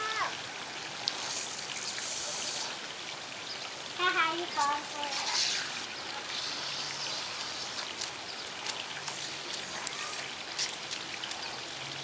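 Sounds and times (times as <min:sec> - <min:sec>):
sprinkler spraying on grass: 0:01.0 - 0:02.8, 0:04.0 - 0:11.7.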